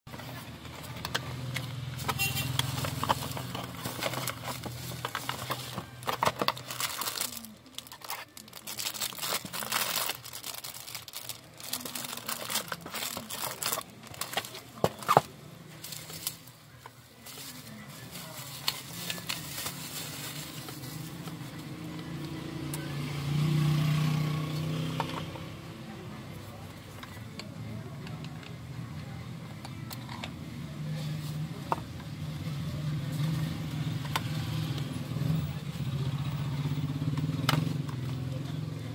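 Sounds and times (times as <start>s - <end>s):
plastic wrapping crinkling: 2.0s - 16.5s, 17.2s - 21.5s.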